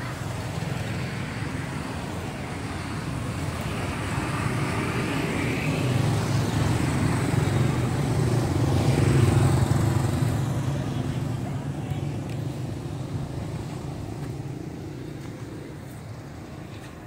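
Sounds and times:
motorbikes passing: 0.0s - 17.0s
road traffic: 0.0s - 17.0s.

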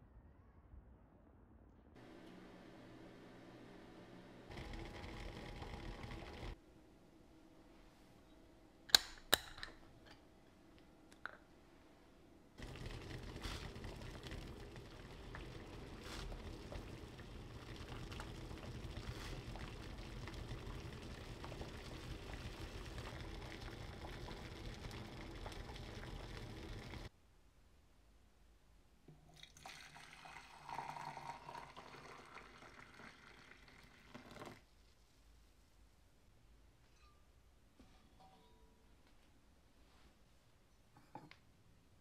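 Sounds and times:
water boiling in a pot: 4.5s - 6.6s, 12.6s - 27.1s, 29.4s - 34.7s
jar lid clicks: 8.9s - 9.8s.

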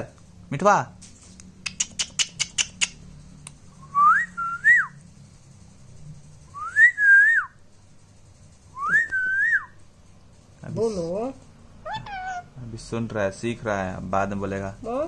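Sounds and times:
sharp clicks: 1.4s - 3.7s.

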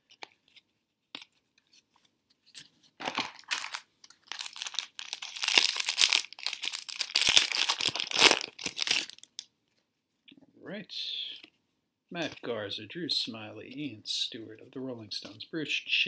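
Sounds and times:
card pack wrapper crinkling: 2.6s - 9.4s.

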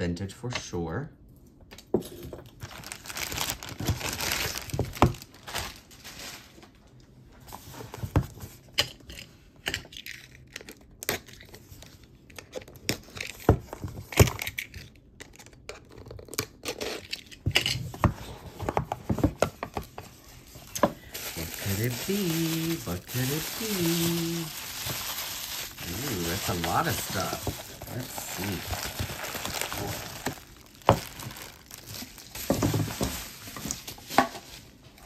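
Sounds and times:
packing material crinkling and tearing: 2.4s - 6.8s, 19.1s - 35.0s.

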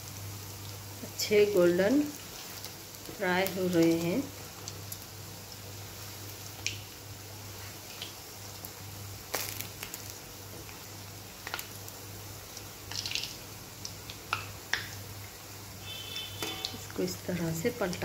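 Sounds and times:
deep-frying sizzle: 0.0s - 18.0s
metal spoon knocking pan: 16.4s - 16.8s.

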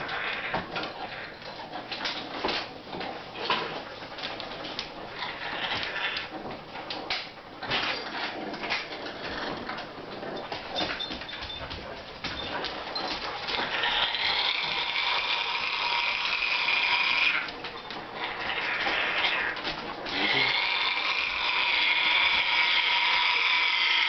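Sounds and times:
parrot growling: 0.0s - 1.4s, 5.1s - 6.4s, 13.5s - 17.5s, 18.1s - 24.0s.

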